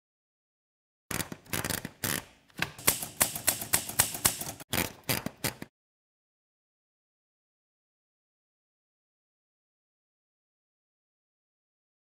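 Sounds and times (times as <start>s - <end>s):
typewriter key strikes: 2.7s - 4.6s.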